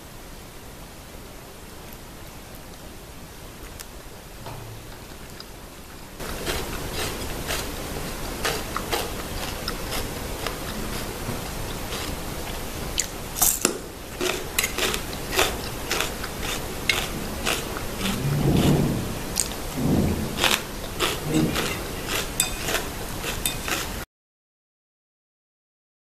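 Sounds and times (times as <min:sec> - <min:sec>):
steady hiss: 0:00.0 - 0:24.0
spoon and fork clinking on bowl: 0:13.4 - 0:15.0, 0:21.5 - 0:22.8, 0:23.4 - 0:23.8.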